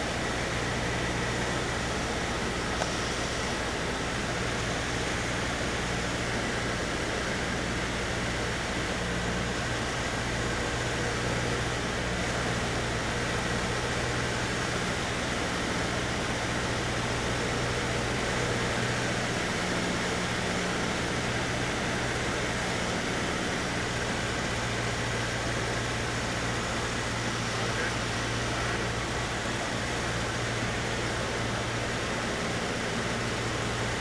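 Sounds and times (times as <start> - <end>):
airplane engine drone: 0.0 - 34.0
hiss of airflow: 2.6 - 6.1.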